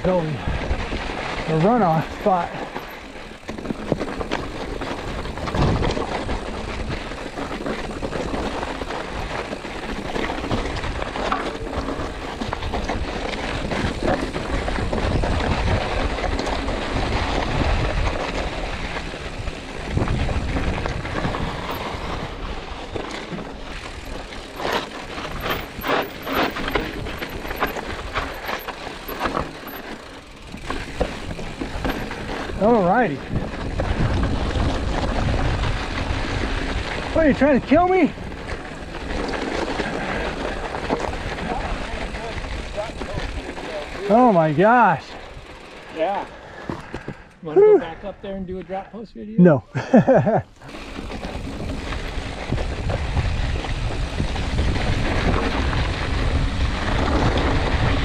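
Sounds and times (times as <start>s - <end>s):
wind rumble on microphone: 0.0s - 44.1s, 50.9s - 58.0s
tyres crunching over gravel: 0.0s - 47.0s, 50.1s - 58.0s
bike frame rattling: 0.0s - 47.5s, 49.9s - 58.0s
bike clacking on rock: 1.1s - 37.1s.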